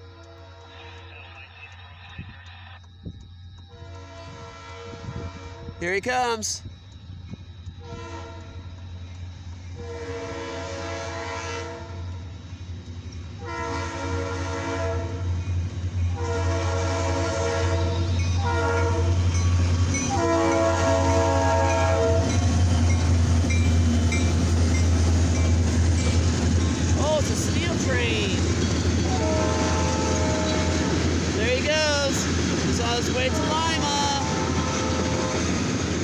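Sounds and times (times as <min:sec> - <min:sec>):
train engines and wheels rumbling: 0:00.0 - 0:36.0
locomotive horn blasts: 0:03.7 - 0:05.8, 0:07.8 - 0:08.6, 0:09.8 - 0:12.1, 0:13.4 - 0:15.3, 0:16.1 - 0:19.2, 0:20.1 - 0:22.6, 0:29.0 - 0:31.1, 0:32.9 - 0:35.6.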